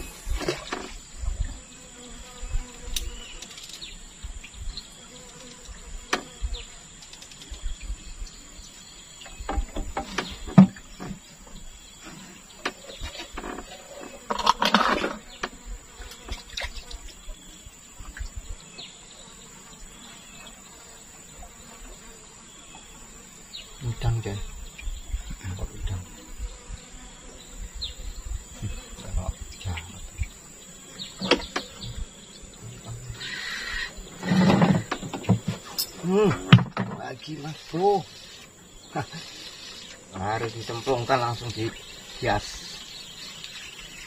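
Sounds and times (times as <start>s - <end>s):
high-pitched insect drone: 13.0s - 44.0s.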